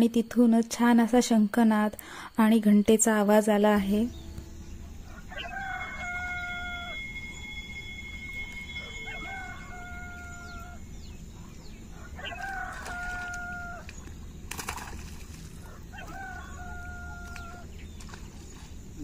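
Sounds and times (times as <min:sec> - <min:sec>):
water splash: 0:12.4 - 0:15.7.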